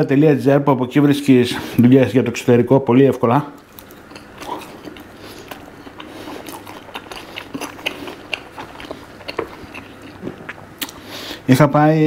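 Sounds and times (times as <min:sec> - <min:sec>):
person chewing crunchy food: 0:03.6 - 0:11.4.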